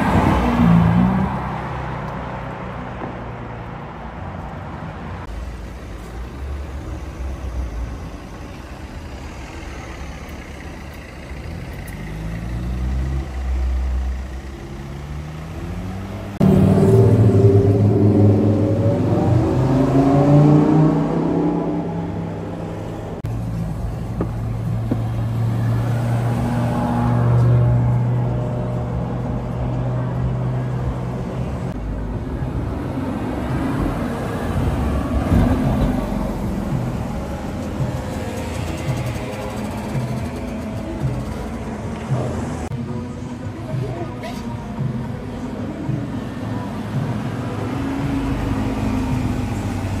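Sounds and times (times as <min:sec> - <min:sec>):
car pulling away: 0:05.2 - 0:42.8
loud engine revving: 0:12.0 - 0:23.2.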